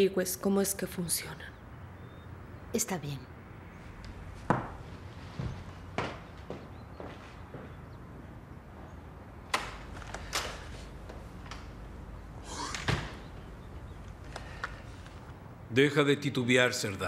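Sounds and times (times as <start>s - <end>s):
high-heel footsteps on wooden floor: 4.3s - 7.8s
sharp knocks: 4.4s - 4.8s.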